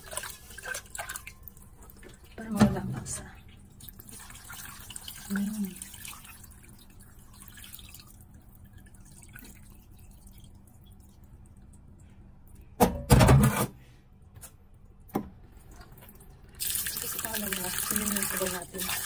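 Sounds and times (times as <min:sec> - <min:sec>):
water trickling and splashing: 0:00.0 - 0:11.8, 0:16.2 - 0:19.0.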